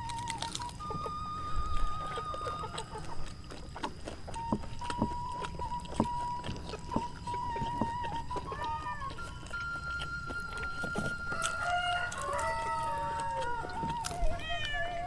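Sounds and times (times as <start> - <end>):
chewing and mouth clicks: 0.0 - 15.0
long wavering tone: 4.4 - 15.0
rooster crowing: 10.6 - 15.0.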